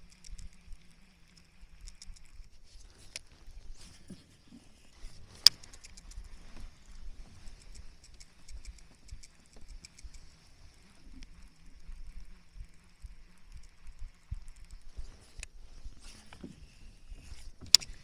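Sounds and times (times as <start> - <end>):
fishing reel ticking: 0.0 - 18.0
sharp click: 5.3 - 6.2, 17.6 - 18.0.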